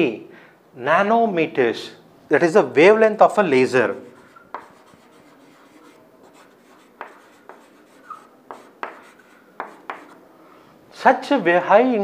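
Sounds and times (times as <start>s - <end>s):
chalk scratching: 3.8s - 10.2s
chalk tapping on blackboard: 3.9s - 10.2s.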